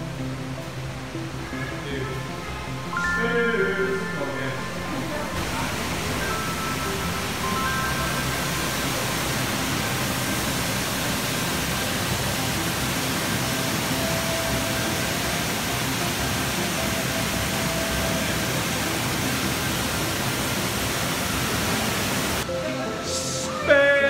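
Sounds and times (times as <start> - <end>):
water rushing over rocks: 3.9 - 22.4.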